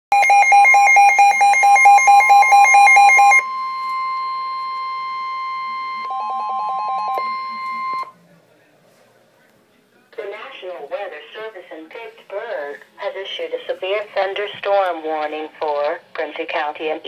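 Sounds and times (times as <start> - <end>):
fast alternating alarm beep: 0.1 - 8.1.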